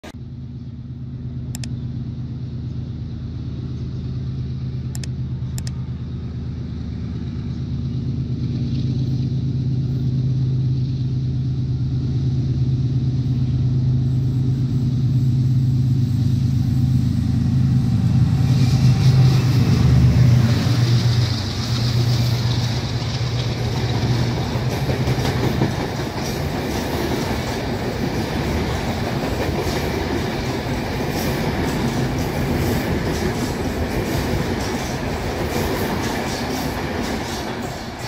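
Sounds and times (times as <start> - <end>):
diesel locomotive engine drone: 0.0 - 38.0
wheels clattering on rails: 17.3 - 38.0.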